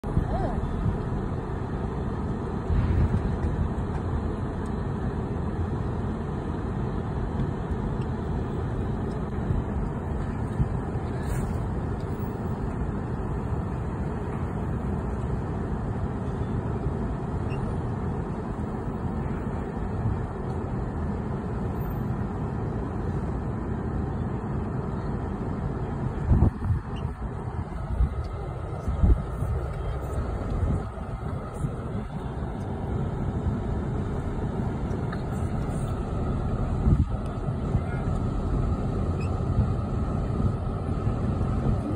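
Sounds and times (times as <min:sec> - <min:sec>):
wind buffeting microphone: 0:26.1 - 0:32.6, 0:35.6 - 0:38.4.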